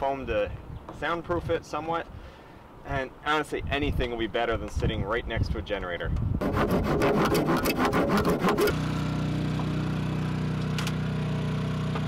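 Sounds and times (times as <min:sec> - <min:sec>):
hand tool rasping wood: 0:06.4 - 0:08.8
muffled generator running: 0:07.4 - 0:12.0.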